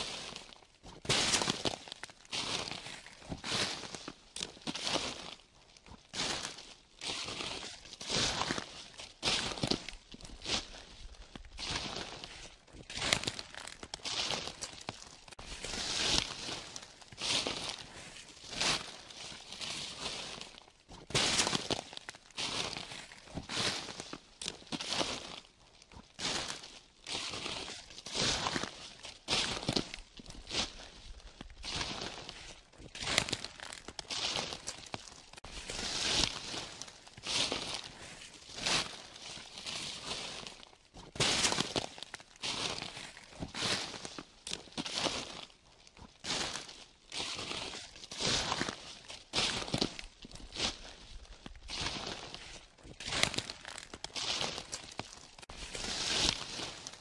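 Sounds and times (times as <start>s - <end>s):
footsteps crunching dry leaves: 0.0s - 57.0s
leaves rustling: 11.6s - 25.4s, 26.3s - 45.5s, 46.4s - 57.0s.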